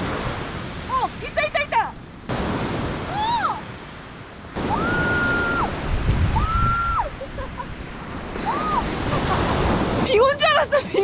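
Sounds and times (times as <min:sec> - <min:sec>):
waves breaking on beach: 0:00.0 - 0:11.0
wind on microphone: 0:04.5 - 0:10.1.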